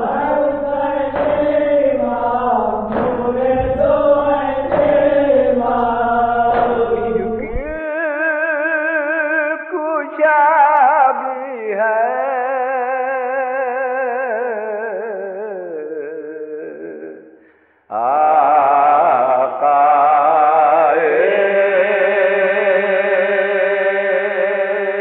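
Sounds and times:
sharp beat: 0.0 - 7.8
steady low hum: 0.0 - 7.8
voices chanting a lament: 0.0 - 8.3, 17.9 - 25.0
single voice singing with vibrato: 0.0 - 25.0.

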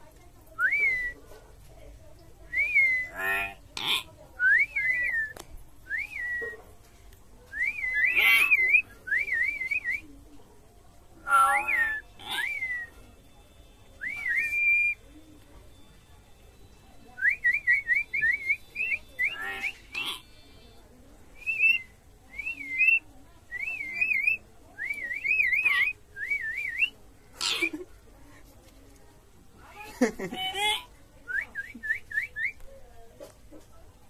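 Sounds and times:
bird whistling and trilling: 0.6 - 1.2, 2.6 - 3.3, 4.5 - 6.6, 7.5 - 10.0, 11.3 - 13.0, 14.0 - 15.0, 17.2 - 20.3, 21.4 - 26.9
bird harsh calls: 8.0 - 8.8, 11.2 - 12.9, 18.0 - 20.4.

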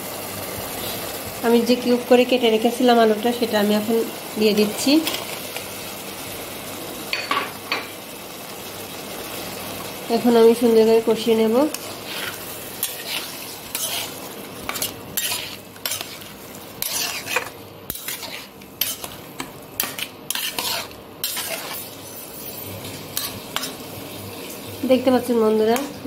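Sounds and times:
food sizzling in oil: 0.0 - 26.0
metal spatula scraping pan: 11.7 - 23.8.

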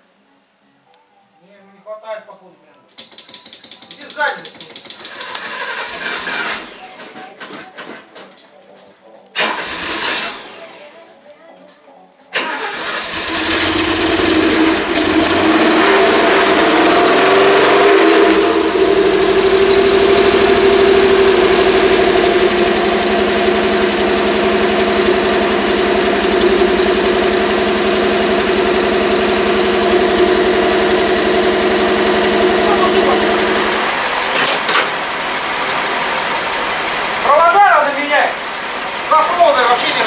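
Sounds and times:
car engine idling: 12.4 - 40.0.

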